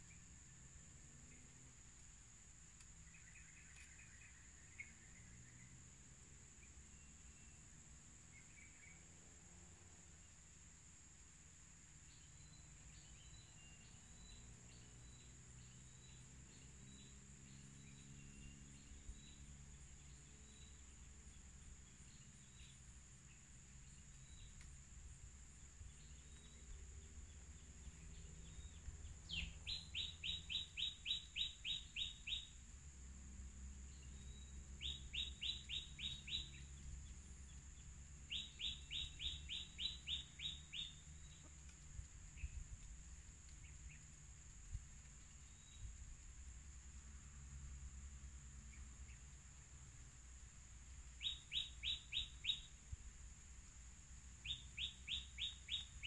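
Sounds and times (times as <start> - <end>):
bird calling: 27.9 - 32.6, 34.2 - 36.8, 38.3 - 41.6, 51.2 - 52.8, 54.4 - 56.0.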